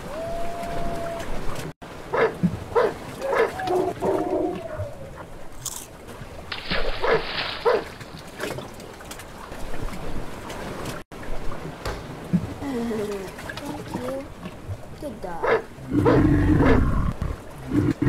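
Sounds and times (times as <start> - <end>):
dogs yelping: 2.2 - 5.3.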